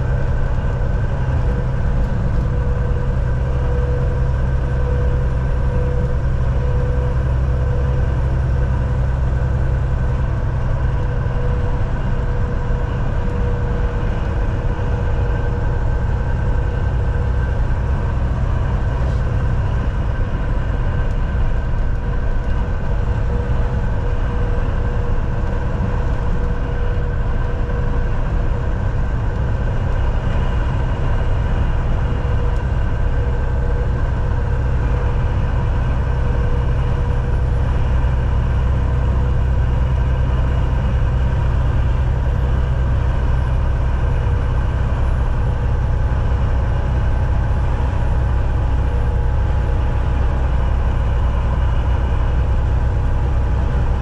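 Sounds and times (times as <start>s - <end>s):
diesel truck engine rumble: 0.0s - 54.0s
road and tyre noise: 0.0s - 54.0s.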